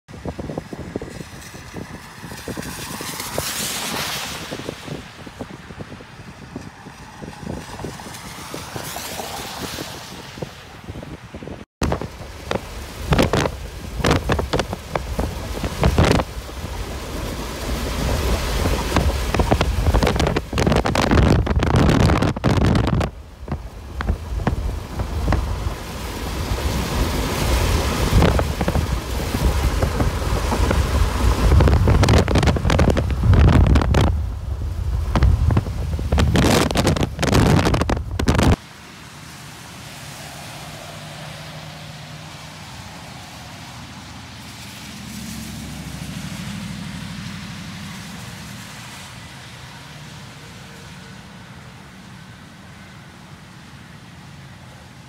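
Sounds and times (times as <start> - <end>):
storm wind buffeting microphone: 0.1 - 38.6.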